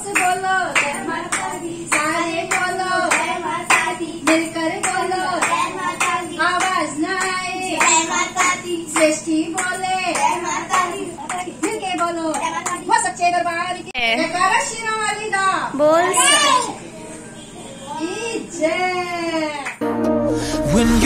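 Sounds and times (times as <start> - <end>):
voices singing together: 0.0 - 12.9
rhythmic hand clapping: 0.0 - 13.0, 19.6 - 20.2.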